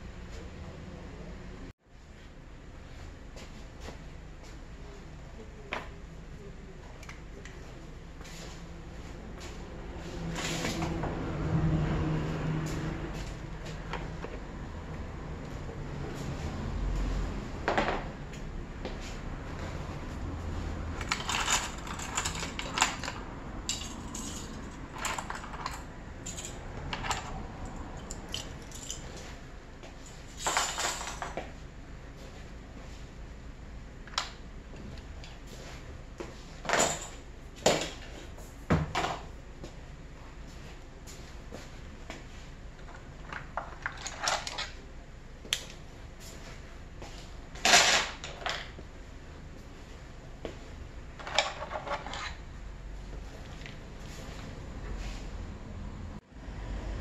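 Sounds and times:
pens and pencils rattling: 21.0s - 29.1s, 43.2s - 44.7s.

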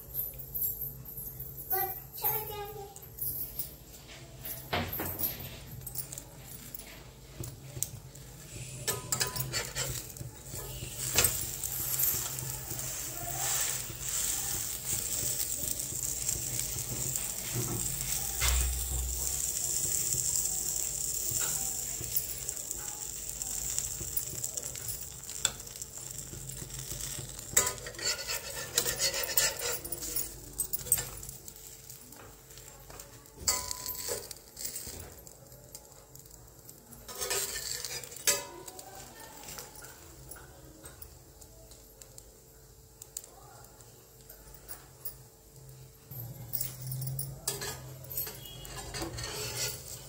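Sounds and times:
sandwich sizzling in frying pan: 5.7s - 46.1s, 47.4s - 50.0s
spatula scraping pan: 8.5s - 22.5s, 25.4s - 30.4s, 37.1s - 38.8s, 47.5s - 50.0s.

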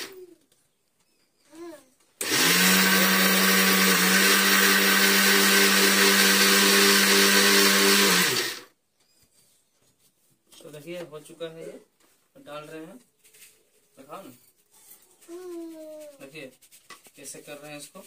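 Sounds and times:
mixer grinder grinding: 2.2s - 8.7s.

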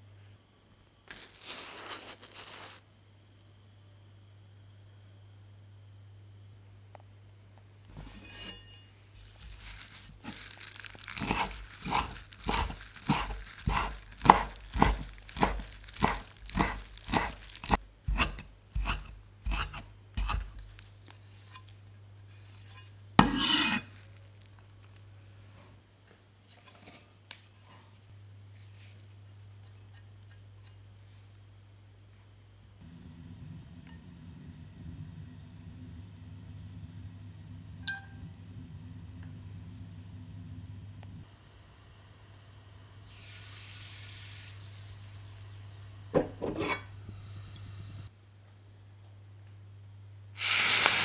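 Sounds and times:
rustling scrape: 1.1s - 2.8s, 7.9s - 24.5s
knife chopping on wooden board: 11.3s - 17.4s.

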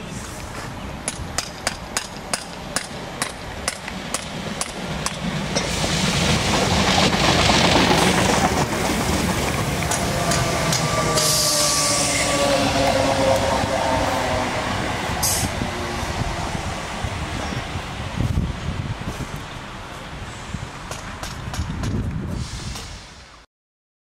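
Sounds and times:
train rumbling past: 0.0s - 23.4s
train wheels clicking over rail joints: 0.4s - 11.8s, 20.8s - 23.0s
train motor whine: 9.8s - 14.5s.

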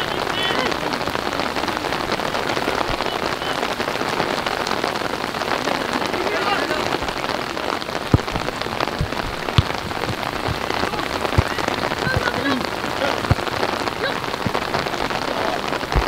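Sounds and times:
steady noisy hiss: 0.0s - 16.0s
faint distant shouts: 5.5s - 16.0s
short dull thuds: 8.1s - 14.8s.

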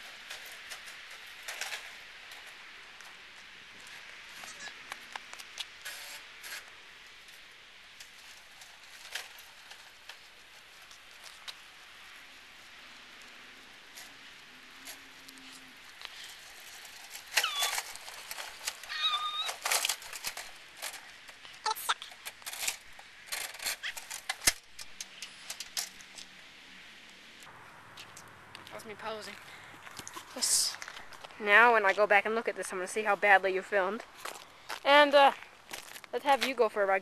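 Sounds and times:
scooter rattling and clicking: 0.0s - 3.2s, 13.0s - 26.4s
faint outdoor background: 0.0s - 37.0s
short squeals: 17.4s - 18.0s, 18.8s - 19.7s.

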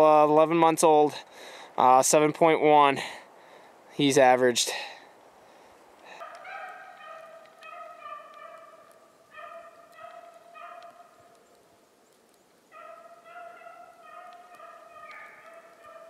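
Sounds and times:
hounds baying: 6.1s - 11.3s, 12.7s - 16.0s.

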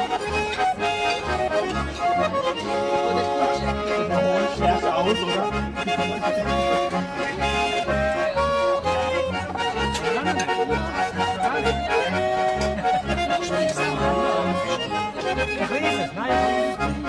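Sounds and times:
folk accordion music: 0.0s - 17.0s.

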